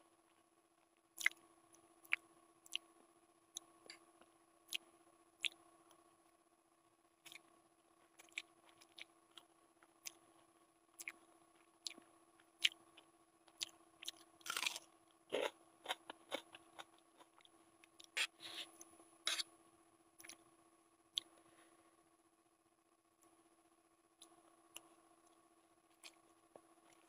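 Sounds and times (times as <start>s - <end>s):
faint steady hum: 0.0s - 27.0s
wet chewing: 13.5s - 19.4s
onion crunching: 14.0s - 17.4s.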